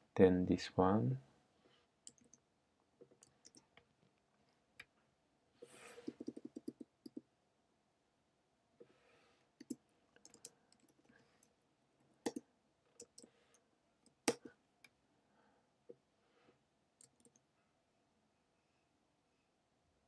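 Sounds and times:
keyboard typing: 2.1s - 2.4s, 6.0s - 7.2s, 9.6s - 11.1s, 12.2s - 12.4s, 13.0s - 13.3s.

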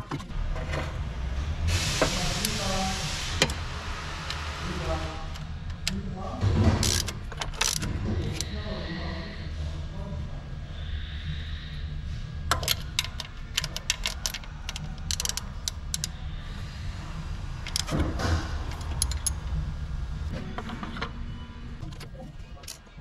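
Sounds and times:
steady low hum: 0.0s - 23.0s
ratchet clicking: 12.5s - 16.2s, 17.6s - 18.0s, 18.7s - 19.6s.

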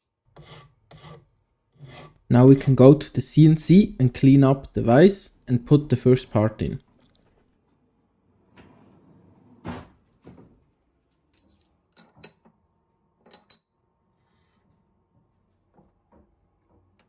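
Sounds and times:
metal drawer sliding shut: 8.4s - 10.5s.

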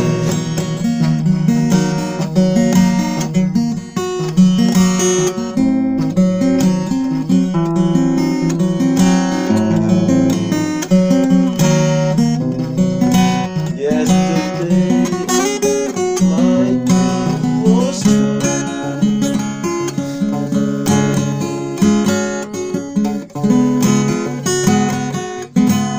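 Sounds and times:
acoustic guitar strumming chords: 0.0s - 25.9s.

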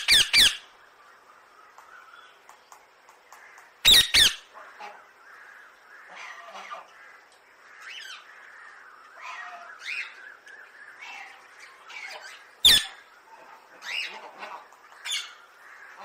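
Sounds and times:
parakeets squawking: 3.9s - 4.5s, 11.0s - 13.1s, 13.8s - 15.4s.

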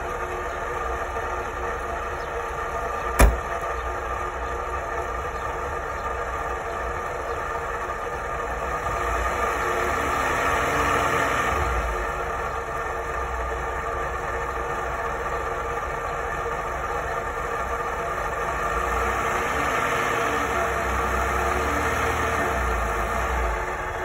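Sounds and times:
car engine idling: 0.0s - 10.7s, 11.6s - 19.6s, 22.4s - 24.0s
car door shutting: 3.1s - 3.6s.

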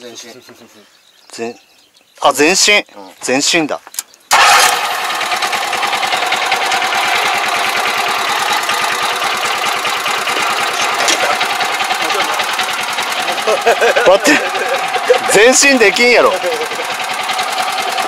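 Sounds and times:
small engine clattering: 4.0s - 18.0s.

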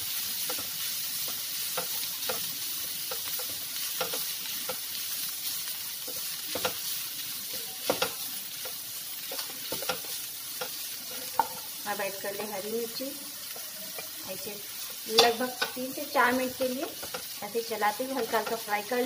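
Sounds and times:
meat sizzling in a frying pan: 0.0s - 19.0s
spatula knocking on pan: 7.8s - 8.2s, 15.1s - 15.9s.

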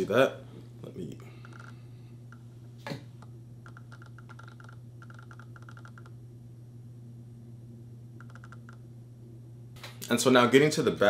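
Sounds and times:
steady low hum: 0.0s - 11.0s
rapid small clicks: 1.4s - 2.4s, 3.2s - 6.2s, 8.2s - 8.8s.

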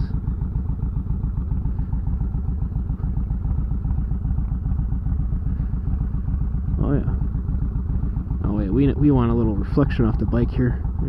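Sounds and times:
motorcycle engine running at low speed: 0.0s - 11.0s.

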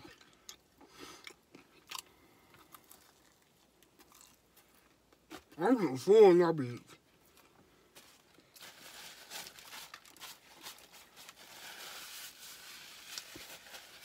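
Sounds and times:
paper napkin crinkling: 8.6s - 14.0s.

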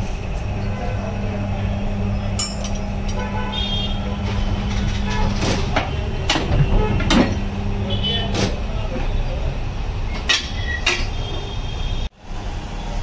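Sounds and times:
machine mechanical hum: 0.0s - 12.7s
metal clanks and knocks: 4.1s - 7.6s, 10.1s - 11.2s.

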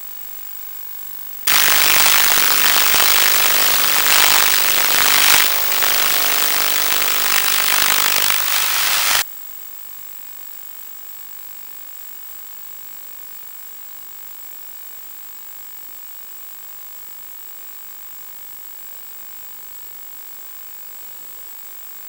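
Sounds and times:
faint hiss and whine: 1.5s - 9.2s.

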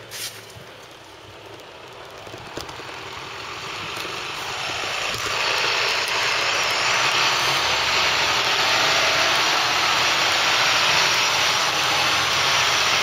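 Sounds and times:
diesel truck engine running: 0.0s - 13.0s
rushing noise: 2.7s - 13.0s.

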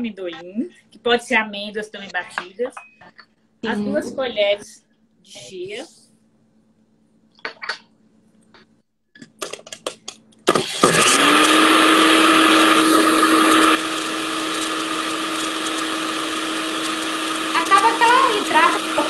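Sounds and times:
blender running: 10.5s - 19.0s.

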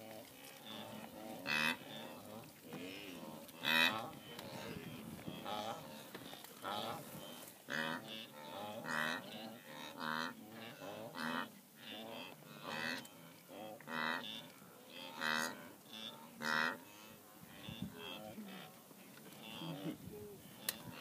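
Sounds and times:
wildebeest nasal grunting calls: 0.0s - 21.0s
faint animal calls: 15.0s - 21.0s.

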